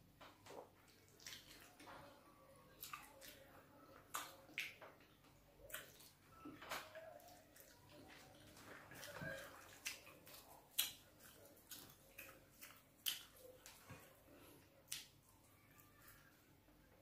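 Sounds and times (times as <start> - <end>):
chewing: 0.4 - 16.4
wet mouth smacks and clicks: 12.2 - 13.4.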